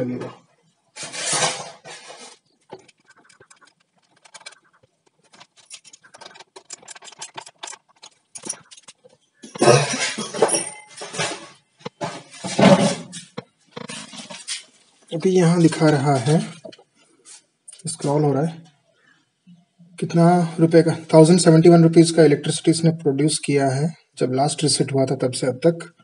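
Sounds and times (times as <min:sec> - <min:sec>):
scraping and rustling: 0:00.9 - 0:17.5
small metal clicks and ticks: 0:02.5 - 0:09.6.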